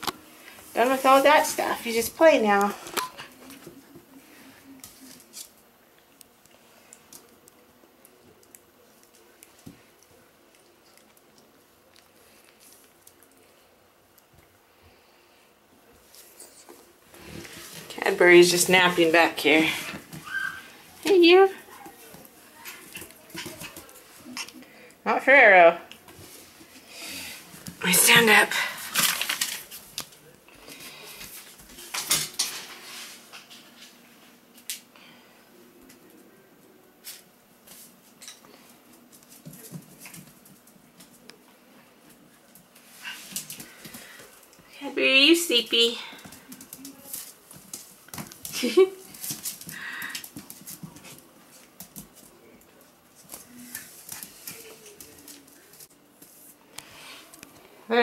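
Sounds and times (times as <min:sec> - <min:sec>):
puppy whimpers: 0:20.2 - 0:20.8.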